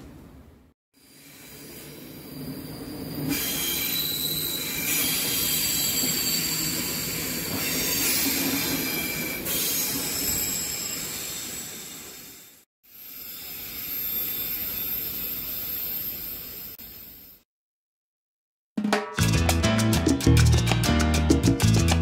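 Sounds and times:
train wheels squealing: 1.0s - 16.8s
train rolling noise: 1.4s - 12.5s.

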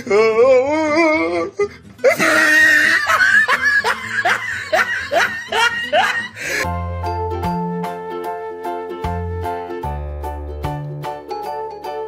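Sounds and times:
person laughing: 2.0s - 6.7s.

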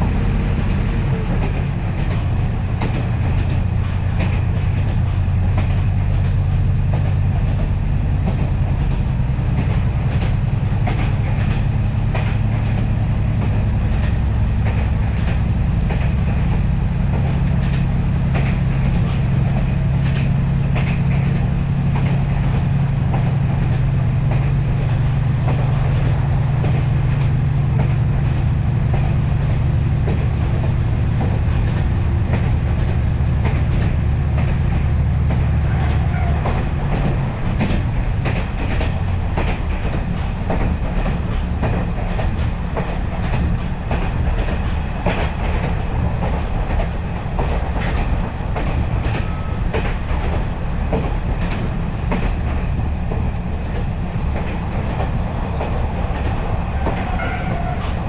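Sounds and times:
diesel engine droning: 0.0s - 2.8s
wheels clacking over rail joints: 0.0s - 58.0s.

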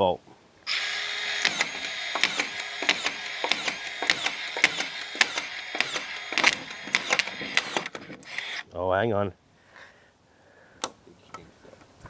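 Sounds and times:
drywall screwdriver driving screws: 0.7s - 8.6s
screw strip clicking: 1.4s - 8.6s.

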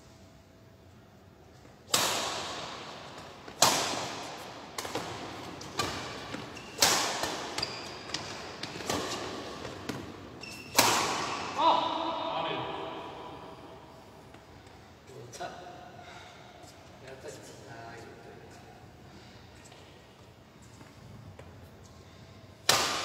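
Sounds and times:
rackets striking shuttlecock: 1.9s - 11.6s, 22.6s - 23.0s.

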